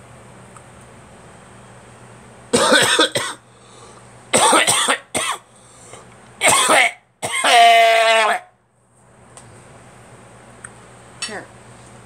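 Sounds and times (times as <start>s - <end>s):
person coughing: 2.6s - 3.4s, 4.3s - 5.4s, 6.4s - 8.4s.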